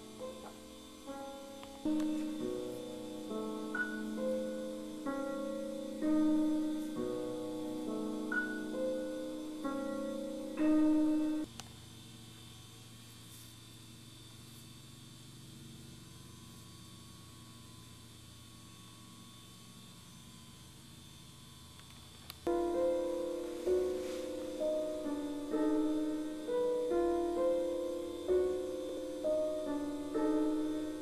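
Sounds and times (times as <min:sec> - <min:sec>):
slow piano music: 0:00.0 - 0:11.5, 0:22.4 - 0:31.0
faint low hum: 0:00.0 - 0:31.0.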